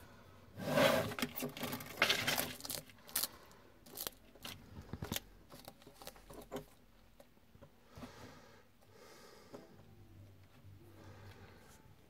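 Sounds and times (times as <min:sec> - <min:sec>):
lizard chewing crunches: 0:01.6 - 0:06.5.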